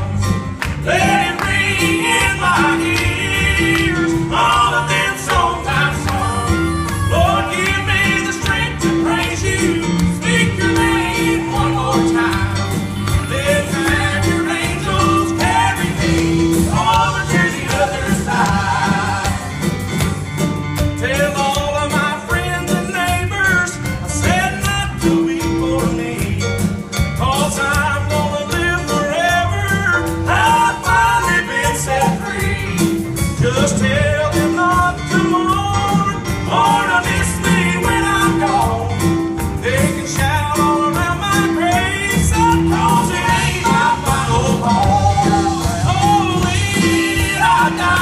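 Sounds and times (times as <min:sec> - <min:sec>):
acoustic guitar: 0:00.0 - 0:48.0
keyboard: 0:00.0 - 0:48.0
backing vocals: 0:00.8 - 0:19.9
woman singing lead: 0:04.9 - 0:07.8.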